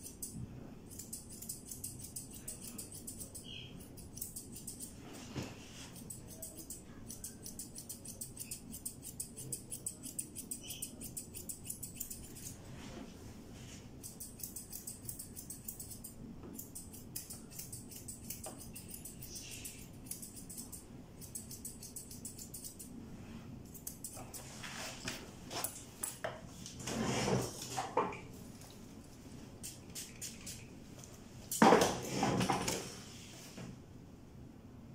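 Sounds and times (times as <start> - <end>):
scissors snipping fur: 0.0 - 5.0, 5.9 - 12.6, 14.0 - 22.9, 23.7 - 24.4.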